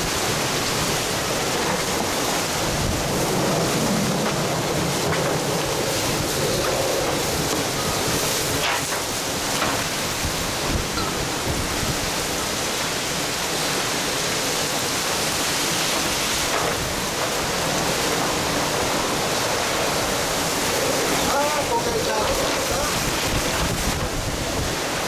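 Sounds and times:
storm wind and driving rain: 0.0 - 25.0.

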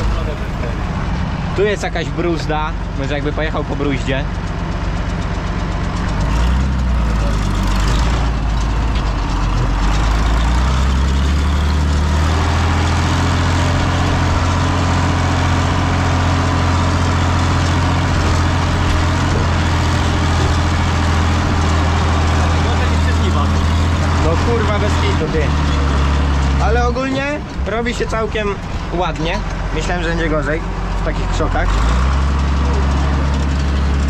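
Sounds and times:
tractor engine running under load: 0.0 - 34.0.

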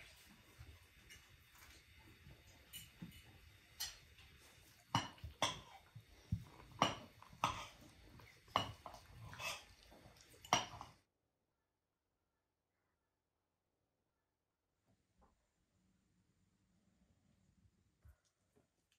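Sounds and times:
cutlery and plates clinking: 2.6 - 4.2, 4.9 - 5.9, 6.6 - 11.0.

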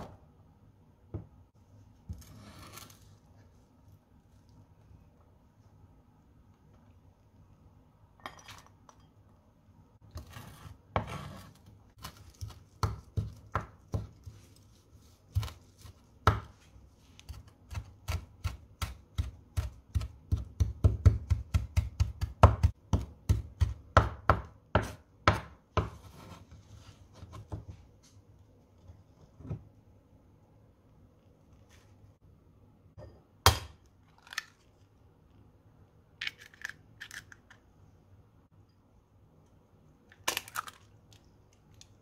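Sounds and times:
knife scraping food on board: 10.2 - 11.7
knife chopping on wooden board: 17.3 - 26.4.

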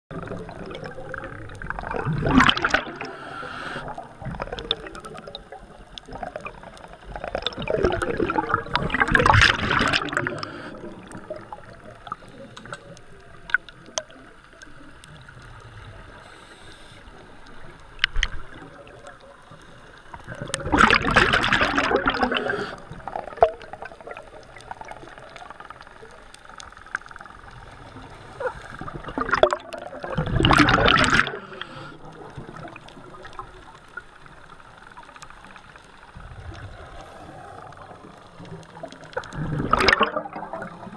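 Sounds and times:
underwater exhaled air bubbling: 0.1 - 40.9
steady hiss: 2.9 - 4.4, 10.1 - 20.2, 22.2 - 23.8, 31.3 - 39.1.

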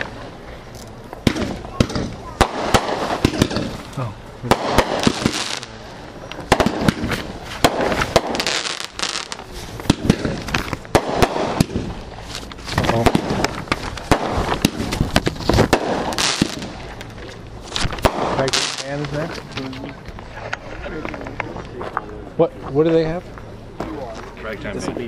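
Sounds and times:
fireworks bangs: 1.1 - 19.5.

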